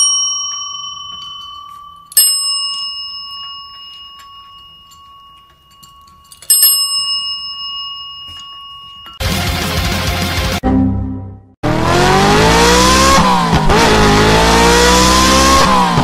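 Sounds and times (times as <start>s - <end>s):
service bell ringing: 0.0s - 9.6s.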